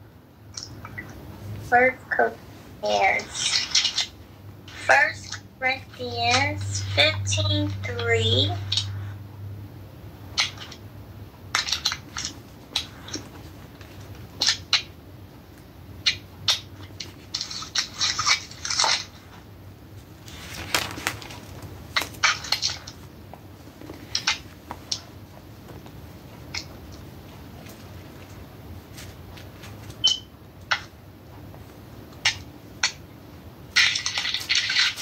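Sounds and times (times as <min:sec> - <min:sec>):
paper rustling and crinkling: 0:20.0 - 0:23.1, 0:27.6 - 0:30.0.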